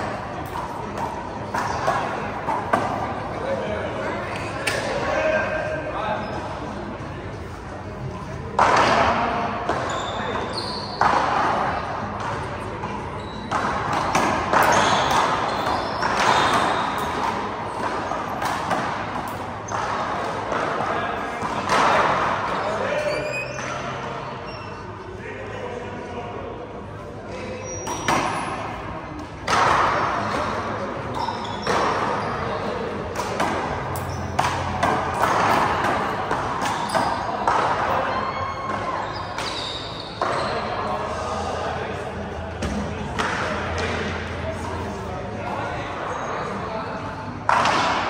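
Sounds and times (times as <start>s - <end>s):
sneakers squeaking on court: 0.4s - 3.0s, 9.7s - 20.1s, 27.5s - 28.8s, 31.0s - 32.9s, 33.6s - 40.8s.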